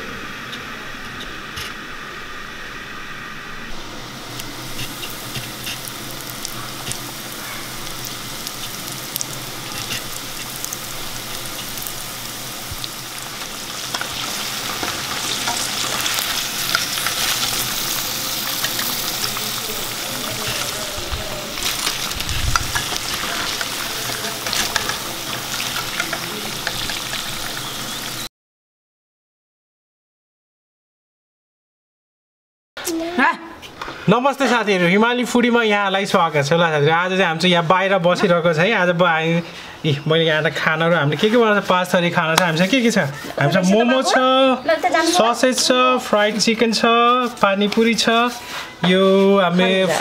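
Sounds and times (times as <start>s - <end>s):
sausages sizzling in hot oil: 3.9s - 28.3s, 36.0s - 50.0s.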